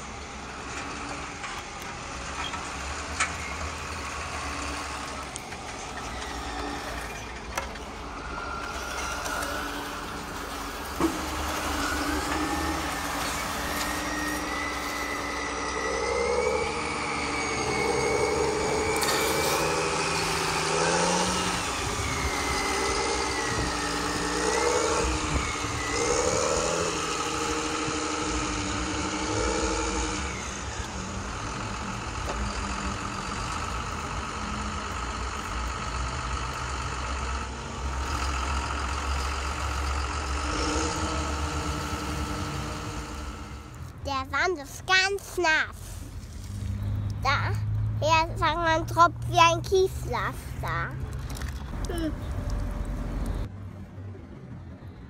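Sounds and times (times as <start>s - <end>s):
truck engine revving: 0.0s - 53.6s
whine rising and falling: 7.9s - 33.9s, 37.3s - 43.9s.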